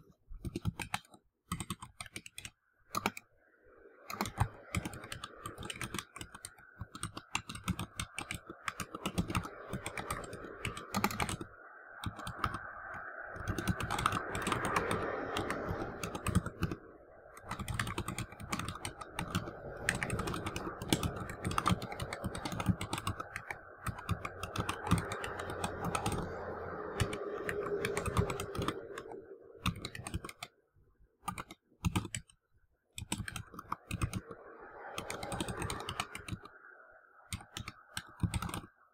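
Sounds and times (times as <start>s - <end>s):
computer keyboard typing: 0.0s - 3.3s, 4.0s - 30.6s, 31.2s - 38.9s.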